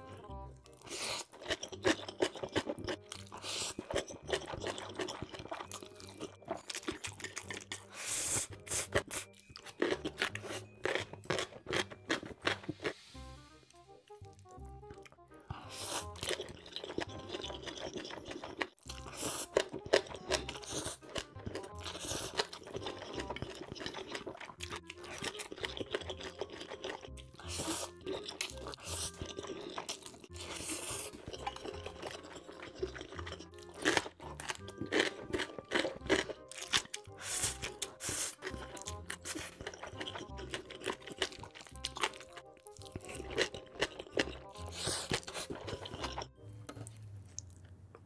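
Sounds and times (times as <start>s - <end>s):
background music: 0.0s - 47.8s
crunchy chewing: 0.6s - 13.0s, 14.2s - 47.7s
slurping noodles: 0.8s - 7.1s, 15.5s - 46.3s.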